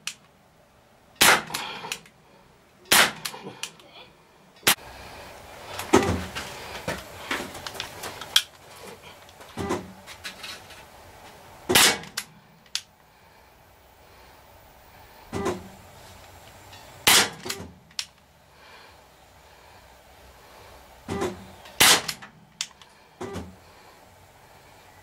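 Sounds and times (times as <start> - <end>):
air pistol shot crack: 1.2 - 2.0, 2.9 - 3.8, 11.7 - 12.3, 17.0 - 17.7, 21.1 - 22.3.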